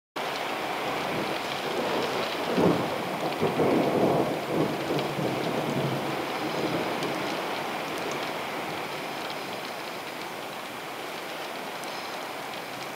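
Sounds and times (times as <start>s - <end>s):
steady rain falling: 0.2s - 12.9s
thunder rumbling: 0.9s - 9.5s.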